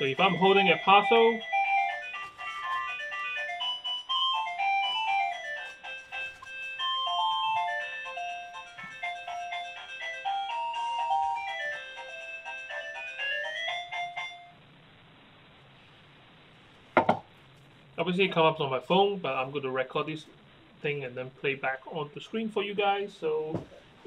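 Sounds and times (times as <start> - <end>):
electronic doorbell chime tune: 3.1 - 14.6.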